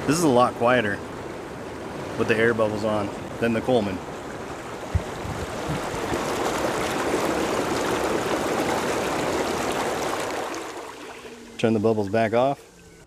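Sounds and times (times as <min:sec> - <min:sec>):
hot tub jets bubbling: 0:00.0 - 0:13.0
knock: 0:04.9 - 0:06.2.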